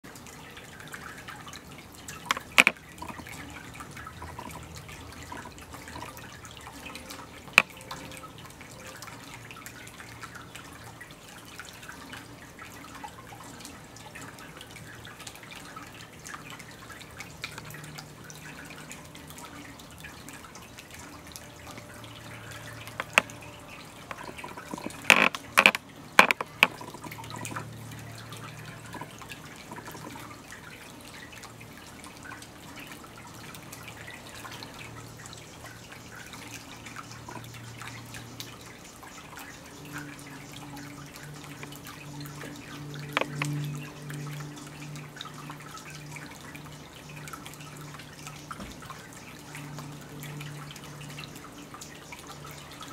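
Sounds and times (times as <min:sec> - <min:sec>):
water fountain bubbling and trickling: 0:00.0 - 0:52.9
sharp clicks: 0:02.3 - 0:03.2, 0:24.1 - 0:27.6.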